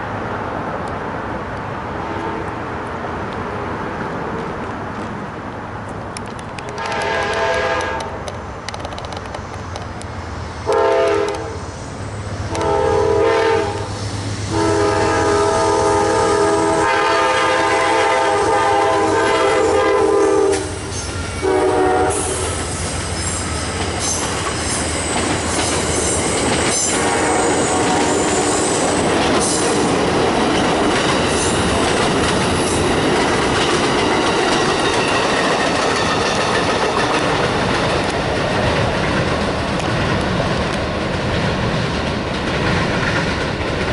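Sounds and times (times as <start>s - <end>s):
diesel locomotive drone: 0.0s - 43.9s
locomotive air horn blasts: 6.7s - 8.2s, 10.7s - 11.6s, 12.5s - 22.8s, 26.9s - 28.8s
faint high wheel squeal: 22.1s - 28.9s
wheels clattering over rail joints: 22.6s - 43.9s.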